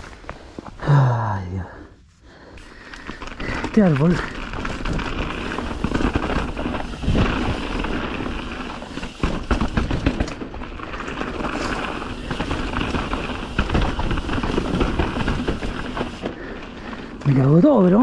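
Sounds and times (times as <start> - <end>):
bike crunching over rocks: 2.6 - 18.0.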